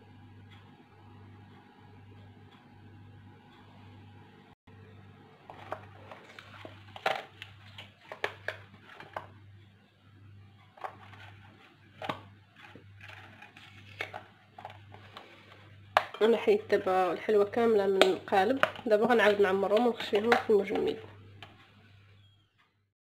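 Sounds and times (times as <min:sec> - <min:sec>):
rubbery rustling of silicone mold: 0:05.4 - 0:09.3, 0:10.8 - 0:15.7.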